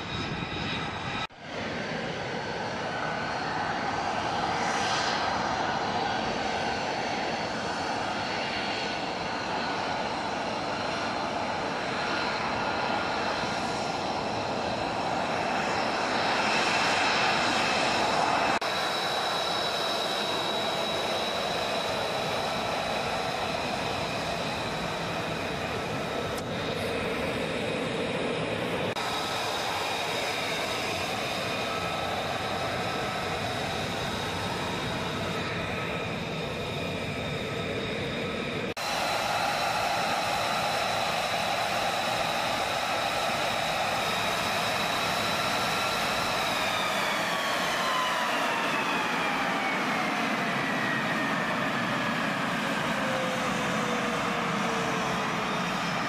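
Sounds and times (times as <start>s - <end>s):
jet engines whining: 0.0s - 56.0s.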